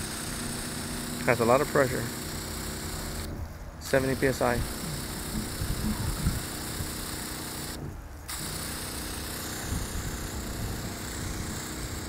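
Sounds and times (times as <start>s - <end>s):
hose nozzle spray hiss: 0.0s - 12.0s
water pump humming: 0.0s - 12.0s.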